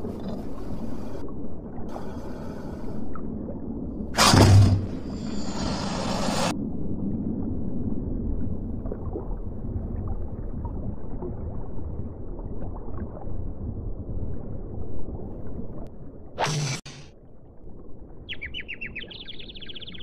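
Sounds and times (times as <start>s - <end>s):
low underwater rumble: 6.5s - 16.3s.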